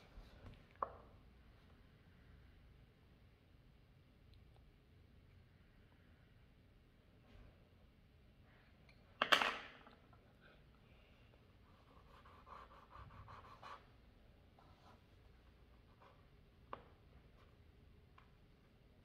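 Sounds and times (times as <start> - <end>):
pencil scratching on paper: 11.6 - 14.0.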